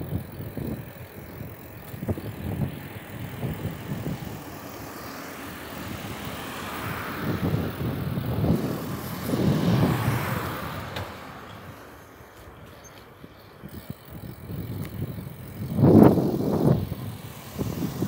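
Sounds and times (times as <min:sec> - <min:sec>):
rumble of wind and road: 0:00.0 - 0:18.0
car passing close by: 0:04.0 - 0:12.2.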